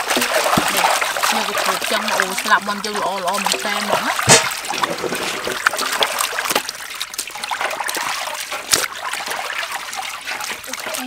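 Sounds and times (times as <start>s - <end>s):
water splashing in metal basin: 0.0s - 11.0s
sharp knock: 4.2s - 4.6s.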